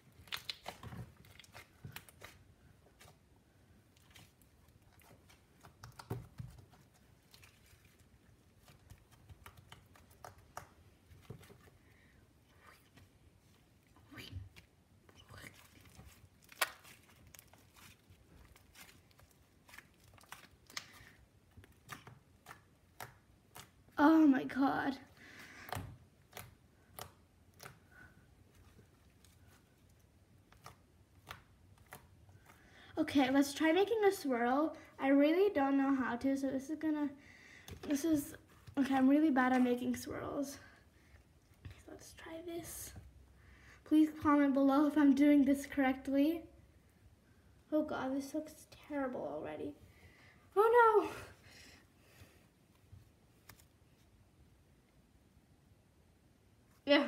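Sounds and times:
slime clicking and crackling: 0:00.1 - 0:03.2, 0:15.3 - 0:24.0, 0:25.7 - 0:27.9, 0:28.6 - 0:32.6.

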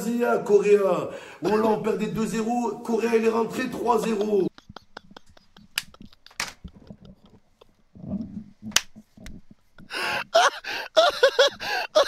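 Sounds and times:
man laughing hard: 0:03.5 - 0:12.0.

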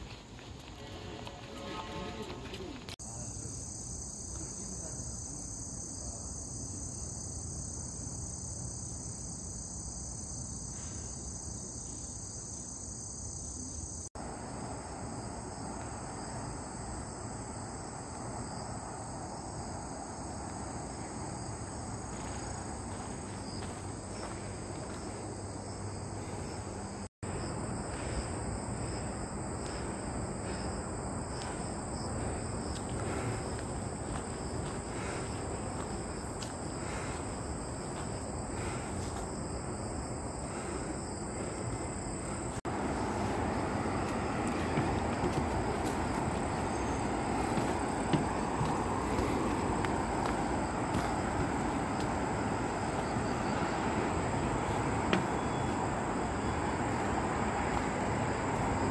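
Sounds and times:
footsteps scuffing: 0:00.0 - 0:03.0, 0:22.0 - 0:25.3, 0:31.3 - 0:39.4, 0:42.6 - 0:53.8, 0:54.6 - 0:55.9, 0:56.8 - 0:58.9
insects singing: 0:15.2 - 0:58.9.

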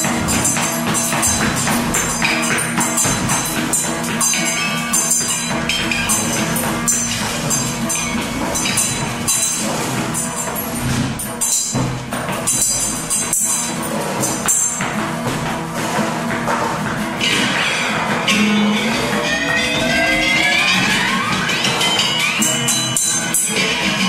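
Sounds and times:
metallic jingling and rattling: 0:00.0 - 0:24.0
sustained low guitar tones: 0:00.0 - 0:24.0.

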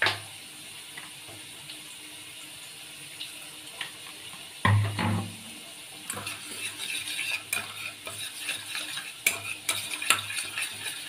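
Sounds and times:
metal spoon scraping steel bowl: 0:06.1 - 0:11.0.

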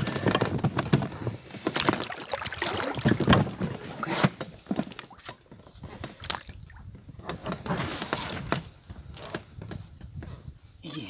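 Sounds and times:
gear knocking in inflatable boat: 0:00.0 - 0:10.3.

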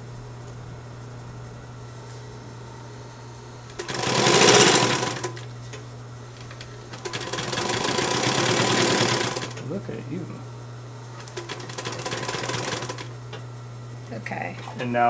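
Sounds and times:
sewing machine motor hum: 0:03.7 - 0:10.4, 0:11.1 - 0:13.4
sewing machine stitching: 0:03.8 - 0:05.4, 0:06.9 - 0:09.6, 0:11.2 - 0:13.1.

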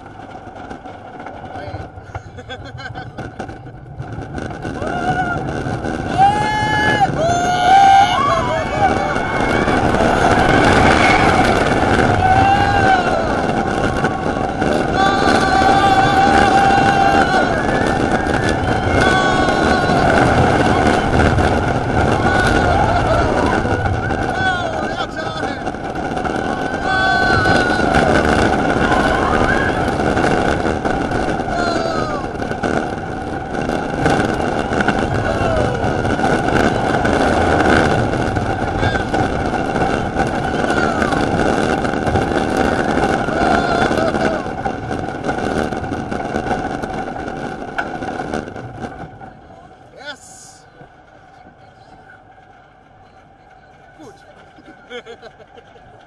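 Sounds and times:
roller coaster rumbling on wooden track: 0:00.0 - 0:56.0
riders yelling: 0:04.7 - 0:45.7.

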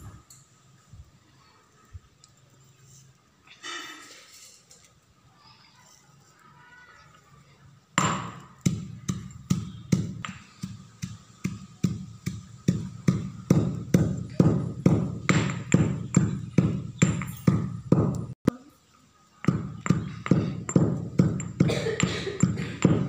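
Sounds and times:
stone pestle pounding in mortar: 0:08.0 - 0:18.4, 0:19.5 - 0:23.0.

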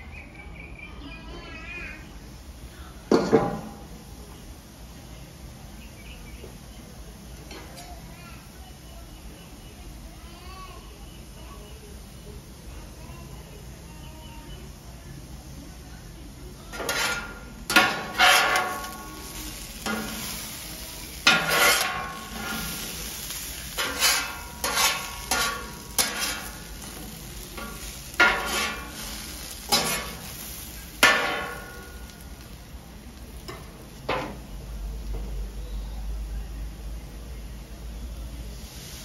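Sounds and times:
potatoes sizzling: 0:01.5 - 0:39.0
spatula scraping metal griddle: 0:16.7 - 0:32.5.

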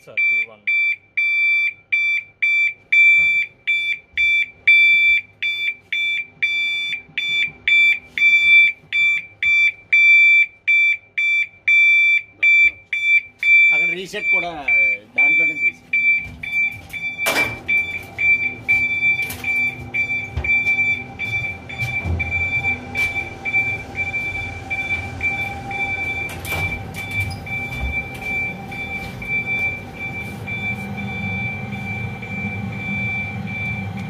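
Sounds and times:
high-pitched pulsing alarm beep: 0:00.0 - 0:34.0
machine equipment humming: 0:00.0 - 0:34.0.

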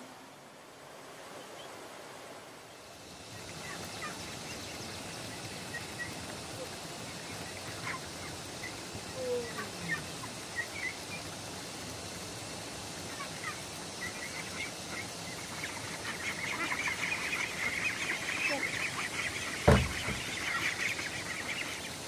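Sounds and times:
steady hiss: 0:00.0 - 0:22.0
lower falling bird call: 0:13.2 - 0:22.0.

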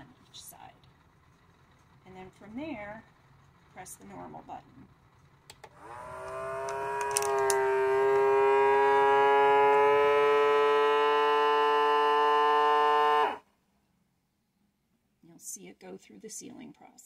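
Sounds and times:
vacuum sealer pump whining: 0:05.6 - 0:13.4.

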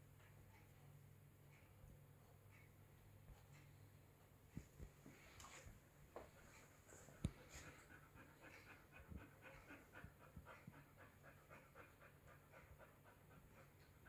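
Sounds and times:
puppy panting: 0:06.2 - 0:14.0.

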